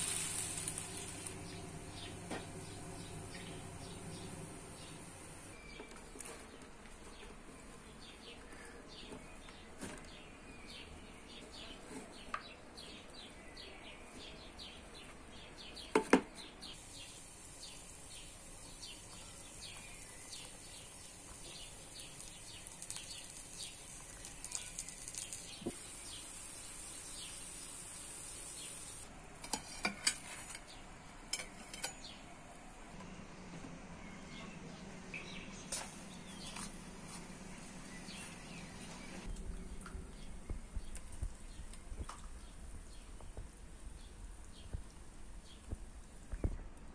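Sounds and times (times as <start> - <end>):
food sizzling in frying pan: 0.0 - 5.3, 16.8 - 19.2, 20.0 - 29.0.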